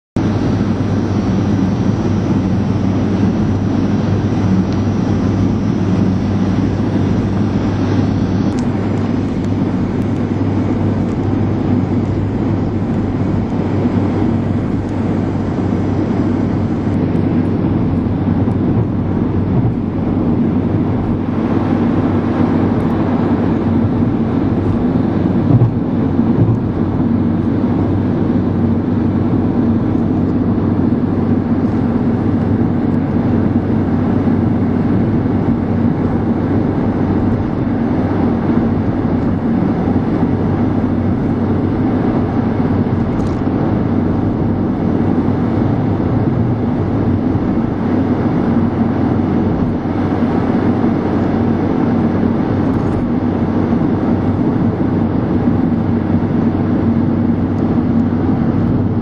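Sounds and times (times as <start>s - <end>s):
vehicle engine and tyre noise: 0.2s - 59.0s.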